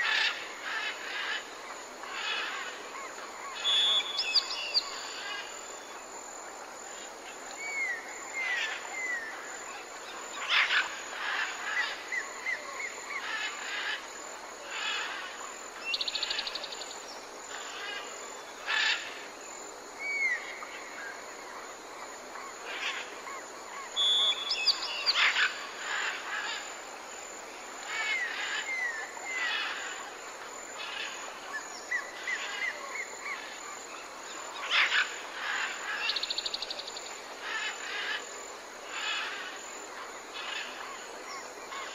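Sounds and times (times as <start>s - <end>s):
steady hiss: 0.0s - 41.9s
songbirds singing and chirping: 2.2s - 6.1s, 23.8s - 26.7s.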